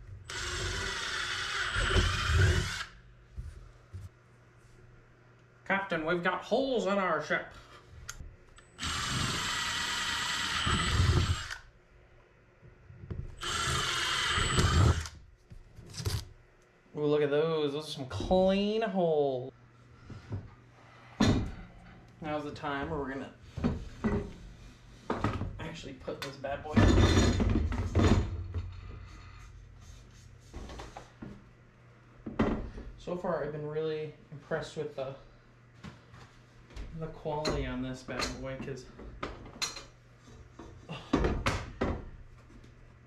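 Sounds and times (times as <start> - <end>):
cordless drill boring through plastic: 0.3 - 3.0, 8.8 - 11.6, 13.4 - 15.2.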